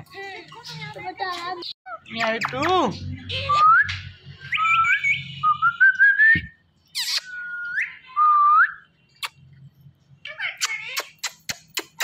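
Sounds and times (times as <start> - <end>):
parakeet whistling: 3.4 - 6.3.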